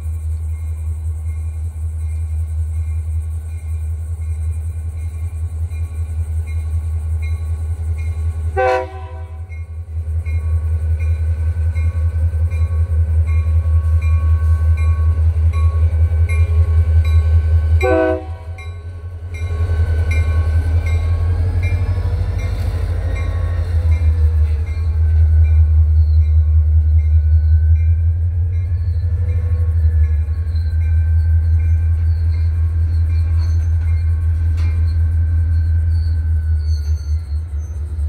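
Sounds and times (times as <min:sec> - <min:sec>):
diesel locomotive engine hum: 0:00.0 - 0:38.0
freight cars rolling on rails: 0:00.0 - 0:38.0
train horn toots: 0:08.5 - 0:09.6, 0:17.8 - 0:18.9.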